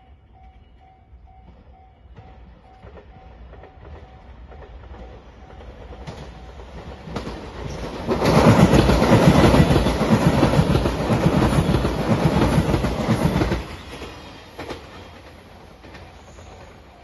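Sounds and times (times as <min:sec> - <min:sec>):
train wheels clattering on rails: 0:01.4 - 0:17.0.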